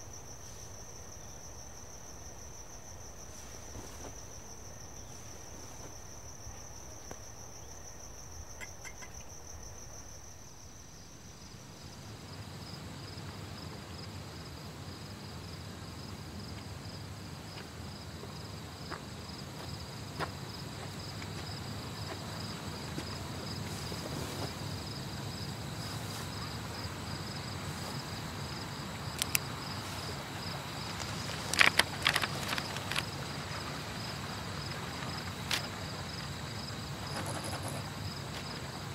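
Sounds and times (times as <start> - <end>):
crickets trilling: 0.0 - 38.9
sharp clicks: 29.2 - 29.5.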